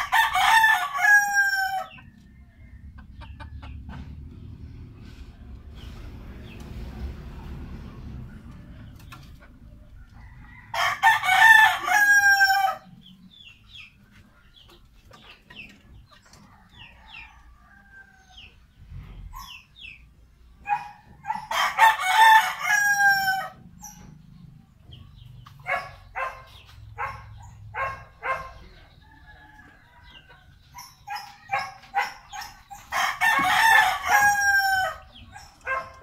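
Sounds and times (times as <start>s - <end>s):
rooster crowing: 0.0s - 2.9s, 10.2s - 12.9s, 21.5s - 23.6s, 32.8s - 35.2s
chicken clucking: 0.0s - 36.0s.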